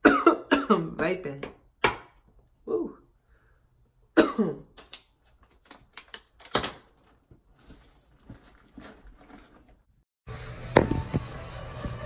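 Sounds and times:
person coughing: 0.0 - 1.0, 4.1 - 4.7.

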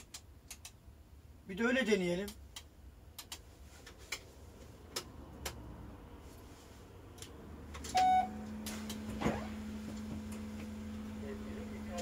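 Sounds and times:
low electrical hum: 0.0 - 12.0
short electronic beep: 7.9 - 8.4.

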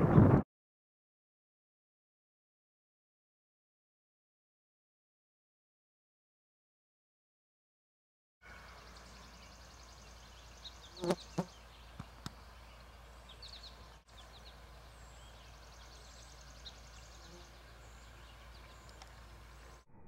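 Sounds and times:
distant birds chirping: 8.4 - 20.0.

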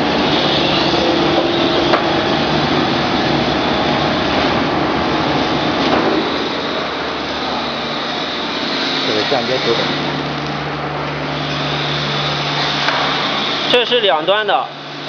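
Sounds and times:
vacuum pump hum and hiss: 0.0 - 15.0.

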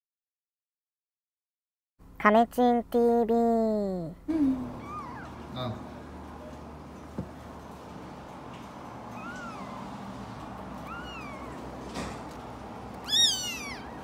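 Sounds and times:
kitten mewing: 4.4 - 5.8, 9.1 - 10.0, 10.8 - 11.8, 13.0 - 14.0.

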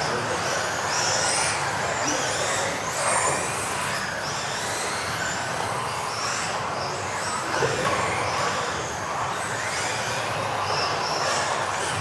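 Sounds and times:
rc car motors whining: 0.0 - 12.0.

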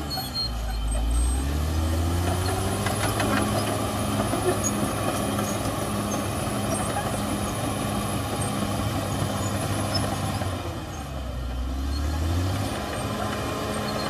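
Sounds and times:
bulldozer diesel engine running: 0.0 - 14.0.

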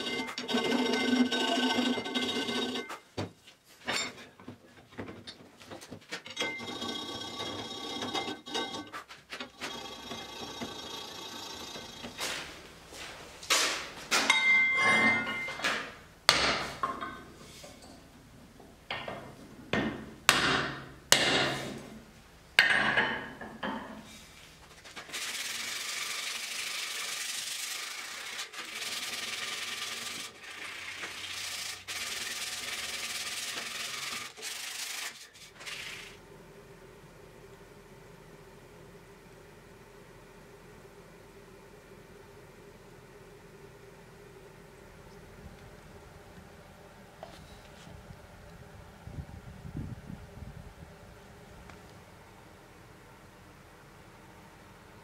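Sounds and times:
sharp knocks on anvil: 16.3 - 17.2, 19.8 - 21.7
hand sanding wood: 25.0 - 36.2.

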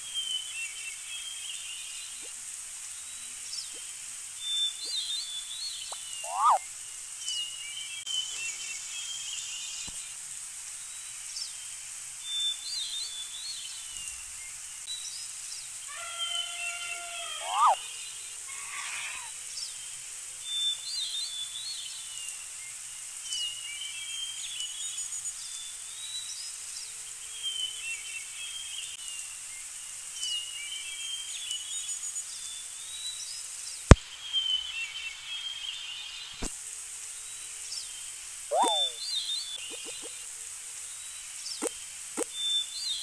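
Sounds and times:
steady hiss: 0.0 - 43.0
birds chirping: 4.5 - 6.6, 17.4 - 17.8, 38.5 - 40.2.

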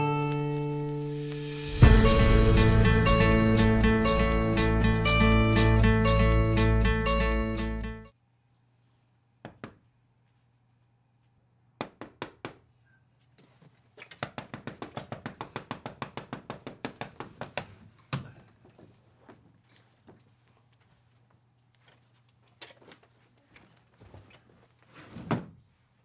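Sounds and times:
acoustic guitar music: 0.0 - 8.1.

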